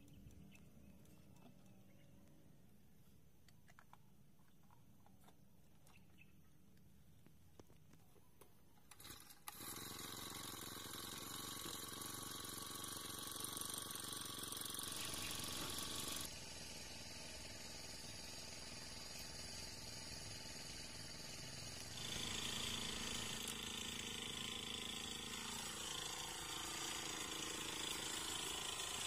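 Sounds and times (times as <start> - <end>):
recoil starter pull: 8.8 - 16.3, 20.6 - 29.0
brush cutter engine running: 8.9 - 29.0.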